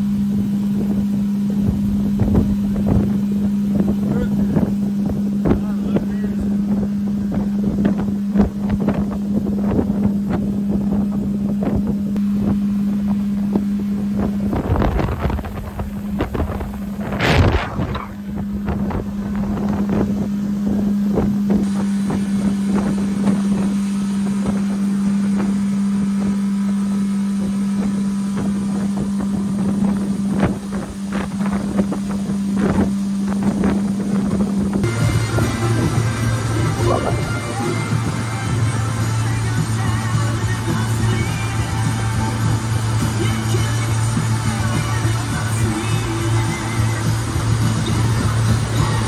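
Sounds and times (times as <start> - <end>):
wind buffeting microphone: 0.0 - 41.5
boat motor humming: 0.0 - 49.0.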